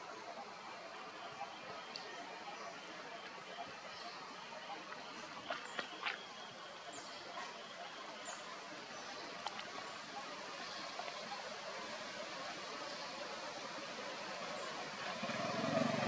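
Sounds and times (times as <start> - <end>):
outdoor background hiss: 0.0 - 16.0.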